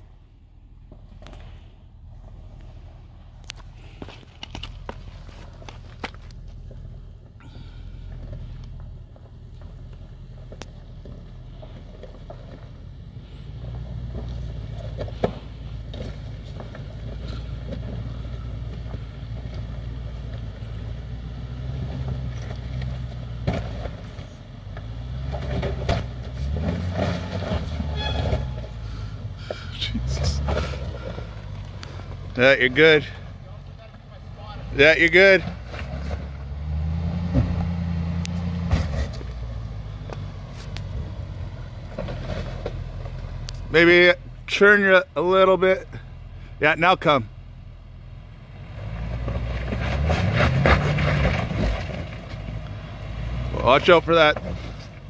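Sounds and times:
engine running at low revs: 0.0s - 55.0s
stones knocking under tyres: 3.5s - 6.9s
tyres crunching over stones: 3.5s - 6.9s, 38.4s - 44.1s.

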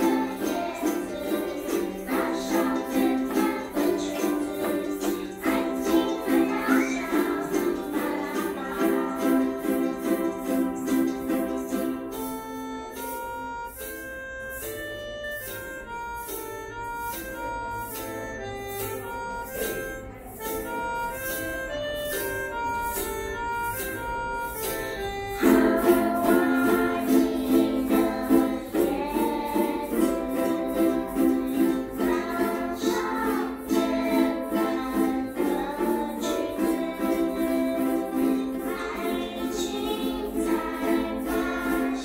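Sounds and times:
ukulele ensemble strumming chords: 0.0s - 42.0s
single-note melody: 5.2s - 36.8s.

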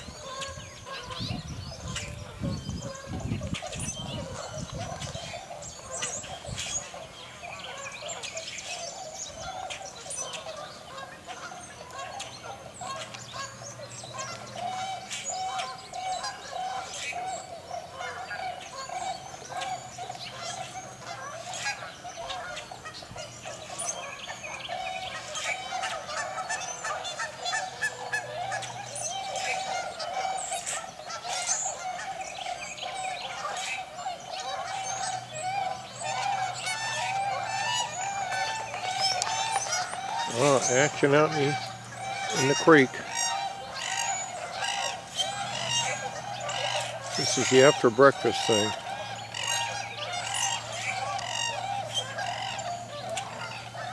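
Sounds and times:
small birds chirping and squeaking: 0.0s - 53.9s
swans and geese honking: 0.0s - 53.9s.

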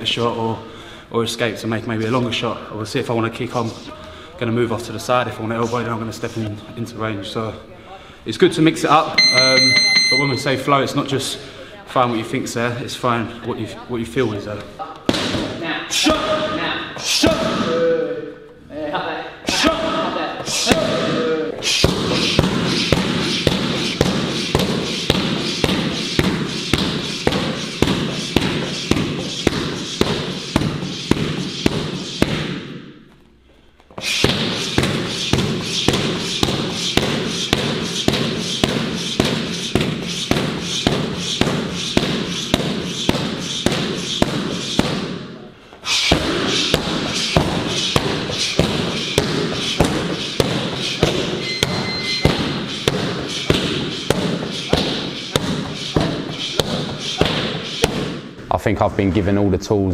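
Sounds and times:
punches and kicks thudding on pads: 15.1s - 16.4s, 21.8s - 32.8s, 34.2s - 45.2s, 46.1s - 58.3s.

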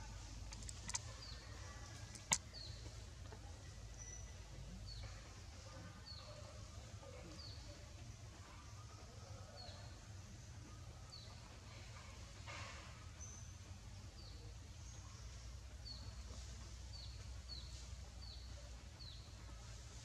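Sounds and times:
small bird chirping: 0.3s - 5.1s.

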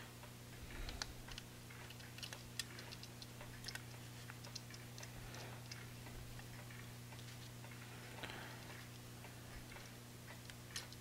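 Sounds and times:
steady low hum: 0.0s - 11.0s
clock hands clicking: 1.0s - 7.9s.

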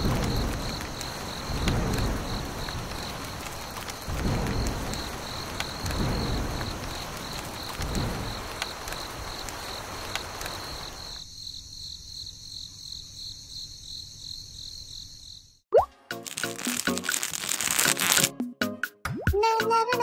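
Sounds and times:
thunder rumbling: 0.0s - 11.1s
rain falling: 0.0s - 11.2s, 16.2s - 18.3s
crickets chirping: 0.0s - 15.6s, 16.2s - 18.3s.

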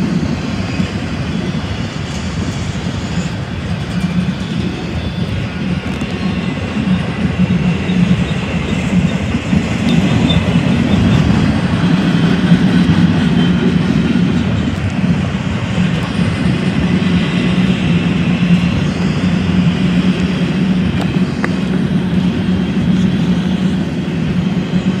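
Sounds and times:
train wheels on rails: 0.0s - 25.0s.

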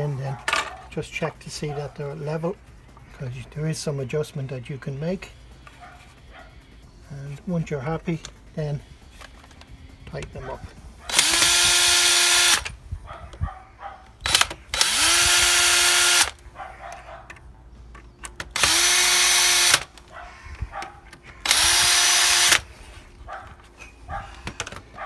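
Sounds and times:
cordless drill driving screws: 11.1s - 12.7s, 14.2s - 16.4s, 18.6s - 19.9s, 21.4s - 22.6s.

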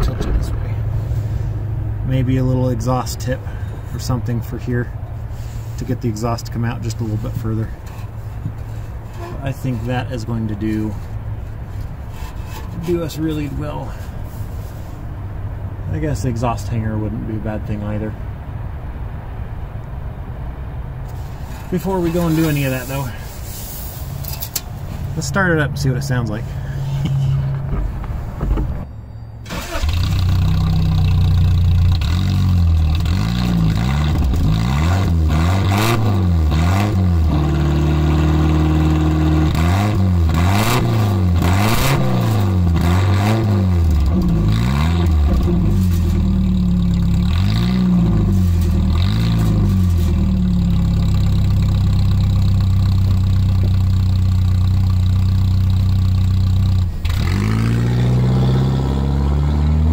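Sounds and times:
car engine idling: 0.0s - 28.9s, 29.5s - 35.4s, 36.4s - 57.5s
car engine starting and revving: 29.4s - 59.9s.

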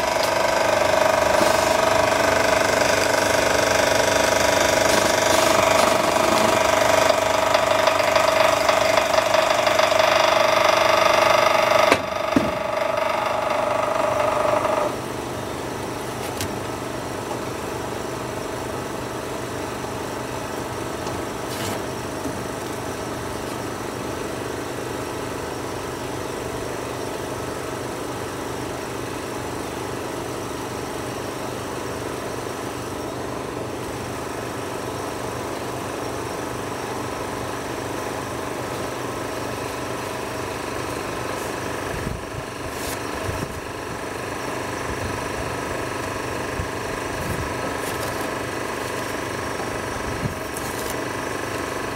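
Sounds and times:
loud whirring: 0.0s - 15.2s
steady mechanical hum: 0.0s - 51.9s.

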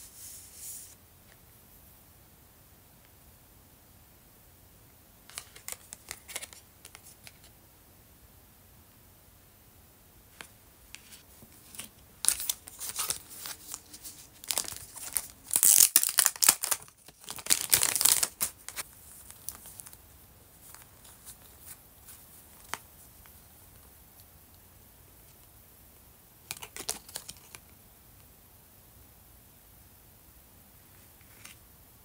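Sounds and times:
paper cards tapping and rustling: 10.4s - 20.0s
cellophane bag crinkling: 11.7s - 20.0s.

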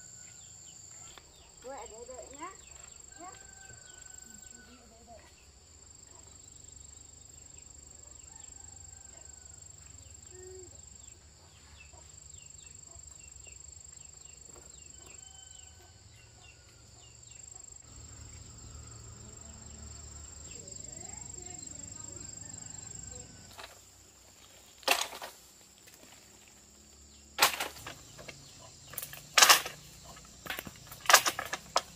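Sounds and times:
insects droning: 0.0s - 31.9s.

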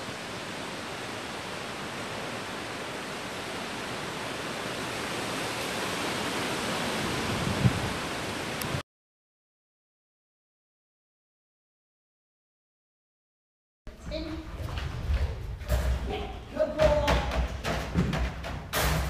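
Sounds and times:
steady outdoor hiss: 0.0s - 8.8s.

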